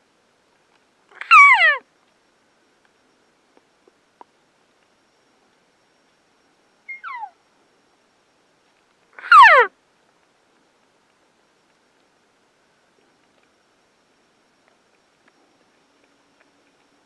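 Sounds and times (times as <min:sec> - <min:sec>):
elk mews: 0:01.2 - 0:01.8, 0:09.2 - 0:09.7.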